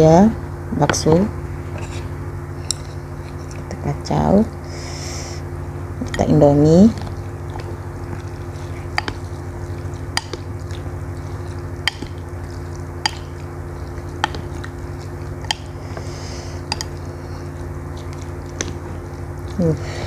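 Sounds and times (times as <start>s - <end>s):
low hum: 0.0s - 20.0s
noodles squishing while stirred: 6.0s - 20.0s.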